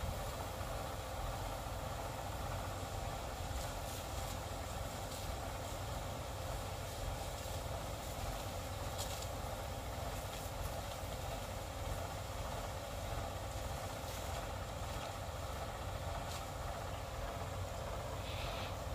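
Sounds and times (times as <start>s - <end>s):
tractor engine running: 0.0s - 18.9s.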